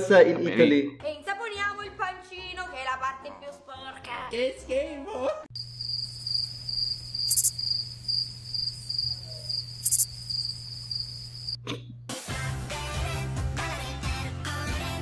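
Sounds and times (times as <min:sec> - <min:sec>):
music: 0:00.4 - 0:05.5, 0:12.1 - 0:15.0
cricket chirping: 0:05.5 - 0:11.6.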